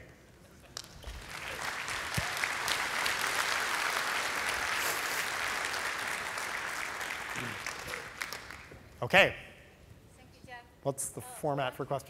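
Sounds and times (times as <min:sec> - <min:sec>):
audience applauding: 0:00.7 - 0:08.8.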